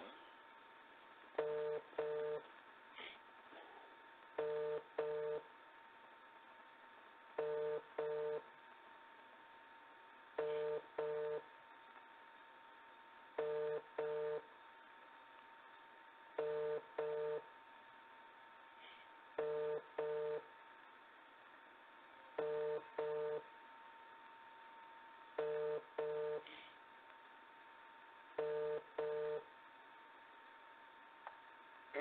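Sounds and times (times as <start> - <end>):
telephone ringback tone: 1.4 - 2.4, 4.4 - 5.4, 7.4 - 8.4, 10.4 - 11.4, 13.4 - 14.4, 16.4 - 17.4, 19.4 - 20.4, 22.4 - 23.4, 25.4 - 26.4, 28.4 - 29.5.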